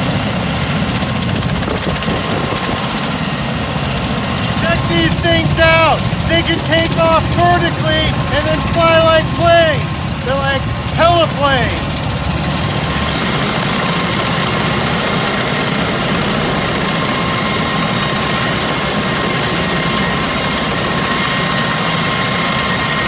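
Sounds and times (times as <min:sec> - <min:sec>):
turbine engine whine: 0:00.0 - 0:23.0
rotor noise: 0:02.8 - 0:17.2.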